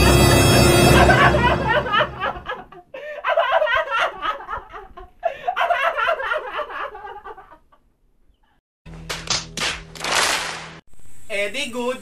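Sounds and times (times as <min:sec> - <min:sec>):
man laughing hard: 0:00.8 - 0:07.7.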